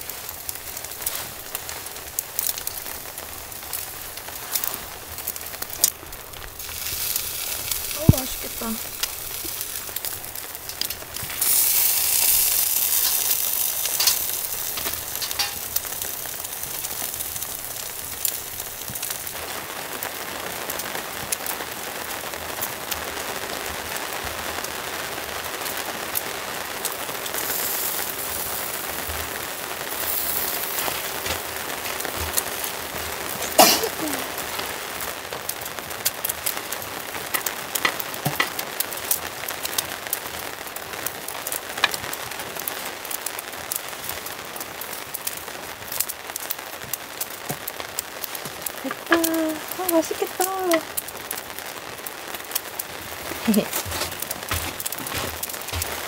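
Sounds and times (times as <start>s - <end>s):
meat sizzling on a grill: 0.0s - 56.0s
fat spitting and crackling: 4.4s - 19.1s, 27.2s - 34.6s.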